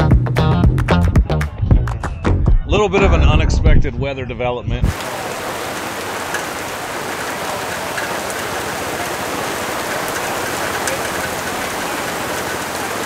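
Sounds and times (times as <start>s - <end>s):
rain falling: 4.9s - 13.0s.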